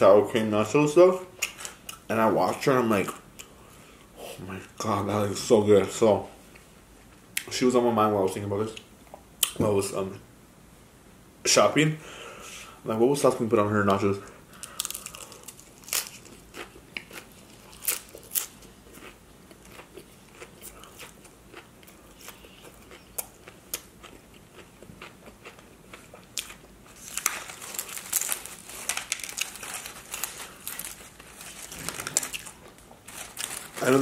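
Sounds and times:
crunching and chewing chips: 14.5s - 34.0s
chips crackling handled by hand: 14.6s - 20.5s, 26.4s - 34.0s.

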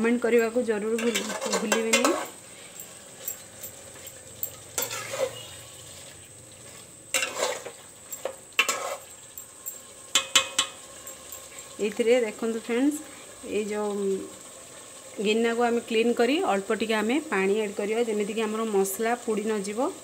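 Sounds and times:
faint sizzle of frying: 0.0s - 20.0s
spatula scraping metal pot: 0.9s - 2.8s, 4.0s - 9.2s
spatula clinks against pot: 9.7s - 11.2s.

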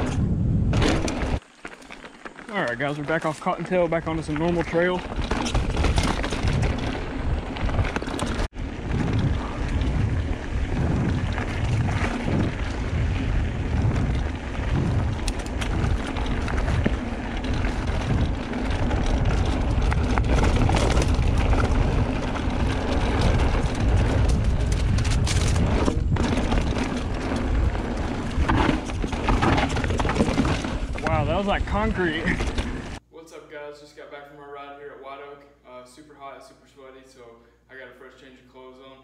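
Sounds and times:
wind buffeting microphone: 0.0s - 1.4s, 4.0s - 33.0s
bike rattling: 0.0s - 33.0s
bike tyres rolling over dirt: 0.0s - 33.0s.

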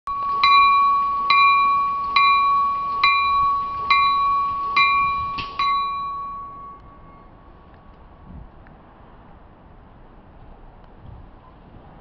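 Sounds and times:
train warning bell ringing: 0.1s - 7.7s.

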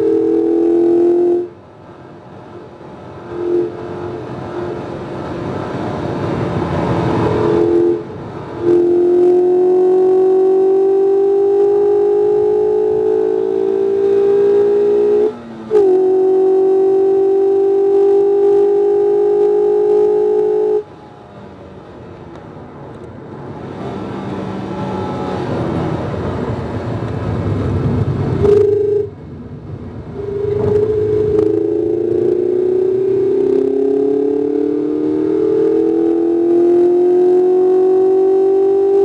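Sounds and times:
car engine running hard: 0.0s - 39.0s
rumble: 25.1s - 34.1s.

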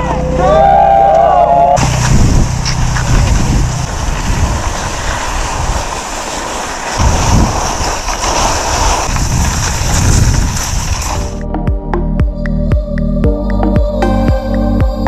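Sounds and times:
skis scraping over snow: 1.8s - 11.4s
wind buffeting microphone: 1.8s - 11.4s.

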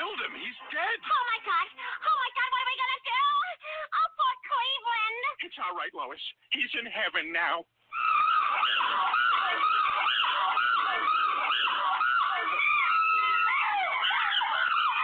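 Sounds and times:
chimpanzee screeching over phone: 7.9s - 15.0s.

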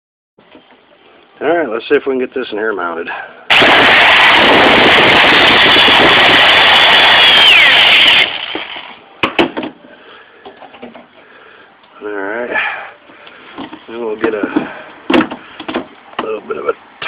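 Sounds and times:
power drill driving screw into metal: 3.5s - 8.9s.

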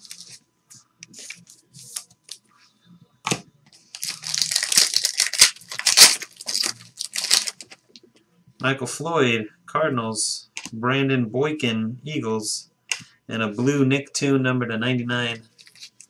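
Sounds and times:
plastic wrapper tearing and crinkling: 0.0s - 0.4s, 3.9s - 7.8s, 15.6s - 16.0s.

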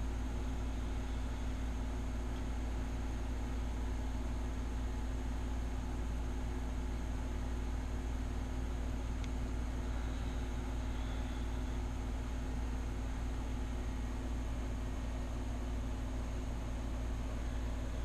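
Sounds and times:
steady low hum: 0.0s - 18.0s
constant hiss: 8.7s - 18.0s.

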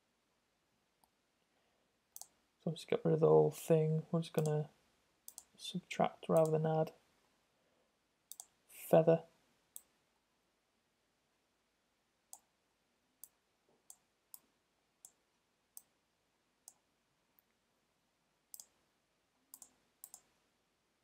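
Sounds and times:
computer mouse clicking: 2.2s - 2.4s, 5.3s - 5.5s, 6.3s - 6.6s, 8.3s - 8.6s, 18.5s - 18.8s, 19.5s - 20.3s.

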